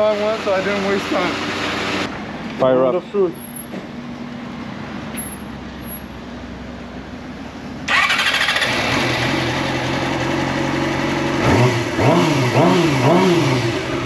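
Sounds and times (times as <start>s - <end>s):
motorcycle engine idling and revving: 0.0s - 14.0s
electric starter cranking: 7.9s - 9.2s.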